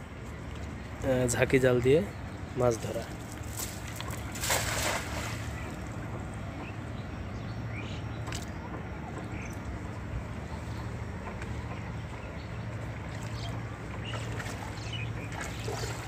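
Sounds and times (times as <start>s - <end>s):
net splashing into water: 3.4s - 5.8s.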